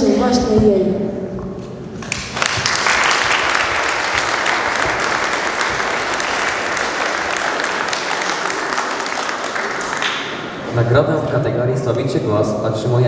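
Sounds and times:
audience applause: 0:02.0 - 0:10.7.

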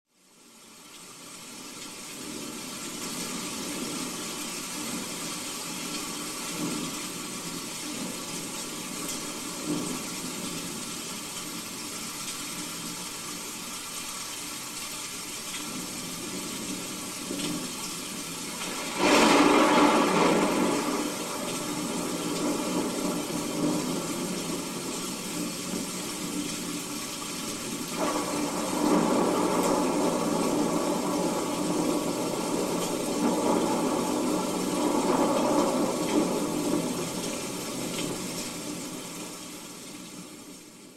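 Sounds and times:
steady hiss of rain: 0:00.1 - 0:40.9
thunder crash: 0:18.6 - 0:23.7, 0:28.0 - 0:37.2
rumbling thunder: 0:18.6 - 0:26.4, 0:27.9 - 0:39.4.

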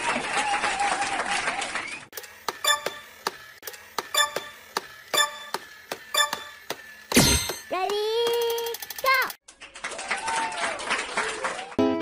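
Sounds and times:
regular ringing ticks: 0:04.1 - 0:06.7.

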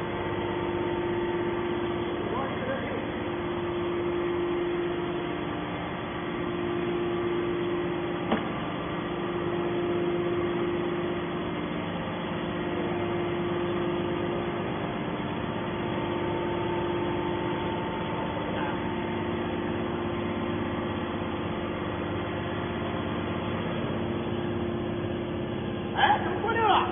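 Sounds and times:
hydraulic pump motor humming: 0:00.0 - 0:26.9.

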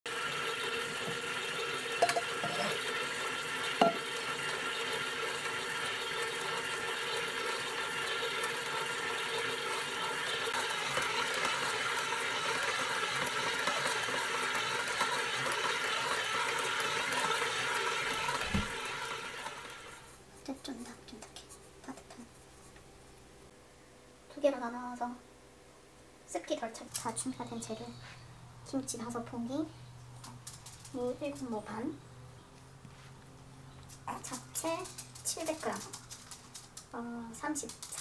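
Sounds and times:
stand mixer motor whining: 0:04.5 - 0:20.0.

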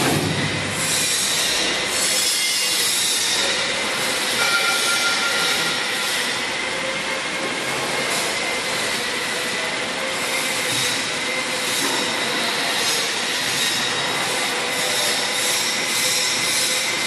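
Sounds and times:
potato peeling machine grinding: 0:00.0 - 0:17.0.

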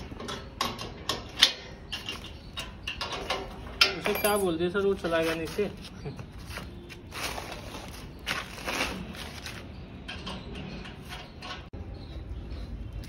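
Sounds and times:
spanners on bolts: 0:00.0 - 0:04.8, 0:09.6 - 0:11.8.

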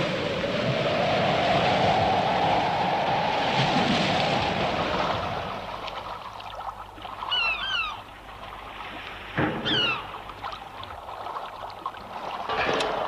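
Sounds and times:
sea water washing: 0:00.0 - 0:13.0
seabirds calling: 0:05.6 - 0:11.7.

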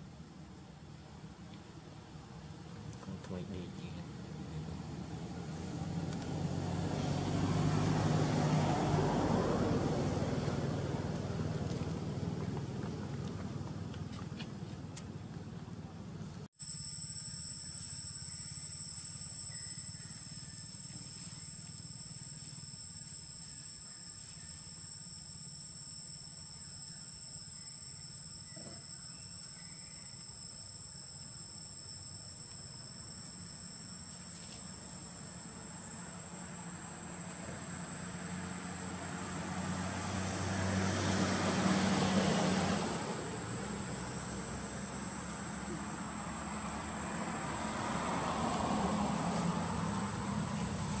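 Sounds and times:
insects trilling: 0:16.6 - 0:51.0.

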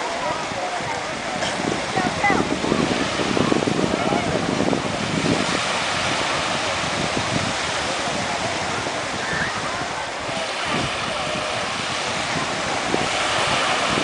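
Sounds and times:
sea waves lapping at shoreline: 0:00.0 - 0:14.0
wind buffeting microphone: 0:00.0 - 0:14.0.

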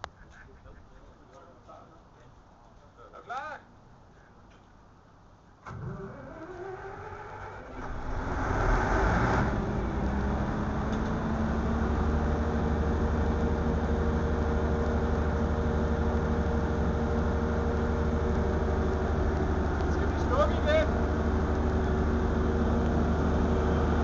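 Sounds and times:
diesel generator starting: 0:05.6 - 0:24.0.

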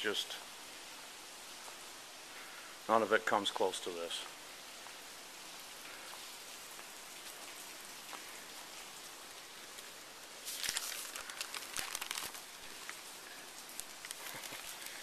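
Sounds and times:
hard rain falling: 0:00.0 - 0:15.0.

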